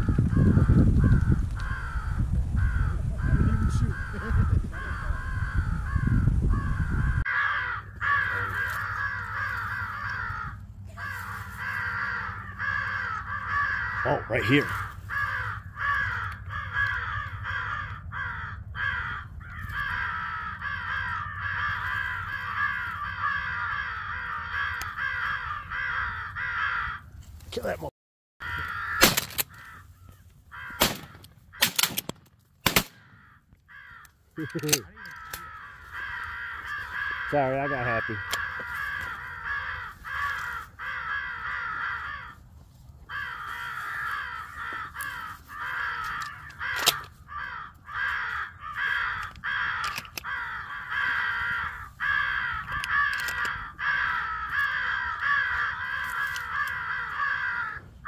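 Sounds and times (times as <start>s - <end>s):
crows cawing: 0.0s - 58.0s
shotgun blasts: 29.0s - 29.4s, 30.8s - 33.1s.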